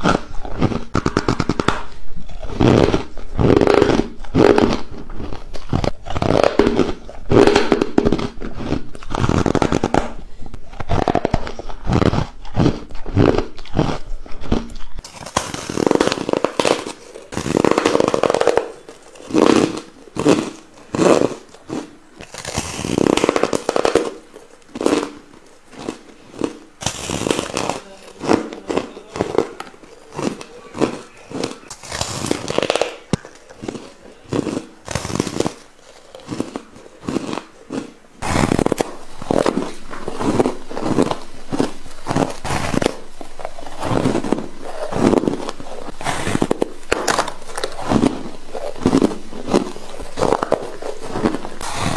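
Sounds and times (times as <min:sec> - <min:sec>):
chewing ice crunches: 0:00.0 - 0:51.9.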